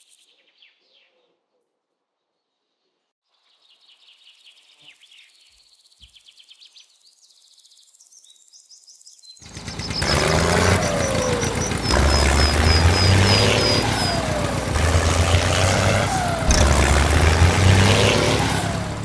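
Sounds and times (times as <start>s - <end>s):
small birds chirping: 3.4s - 19.0s
loud dense low drone: 10.0s - 19.0s.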